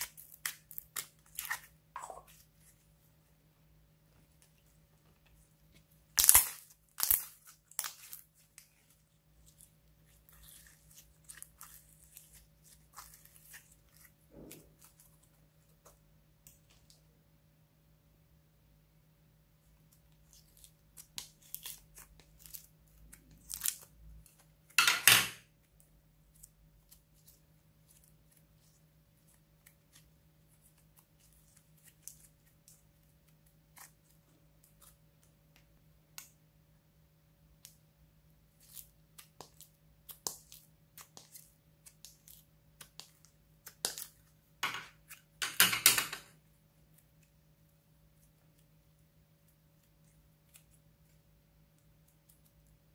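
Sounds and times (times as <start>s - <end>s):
slime crackling and popping: 0.0s - 2.2s, 6.1s - 15.3s, 20.2s - 24.8s.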